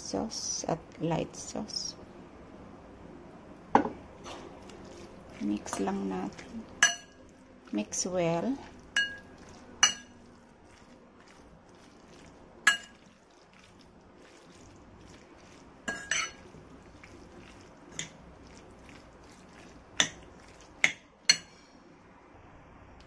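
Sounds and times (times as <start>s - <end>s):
fork stirring beef in bowl: 4.2s - 21.6s
fork clinking against bowl: 9.0s - 10.2s, 12.7s - 13.1s, 15.9s - 16.4s.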